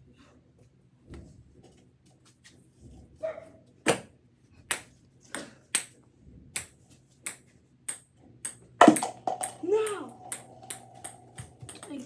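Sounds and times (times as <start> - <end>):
ping-pong ball bouncing: 6.5 - 12.0.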